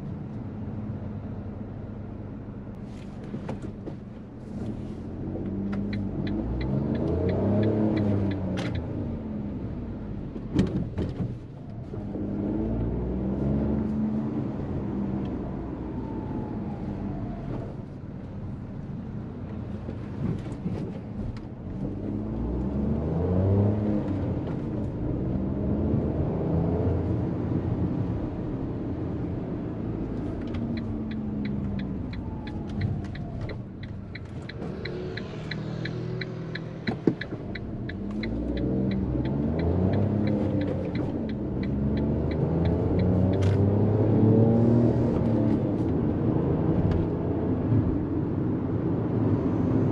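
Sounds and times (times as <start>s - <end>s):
car engine accelerating: 4.4s - 17.9s, 21.7s - 49.9s
light ticking: 30.6s - 43.6s.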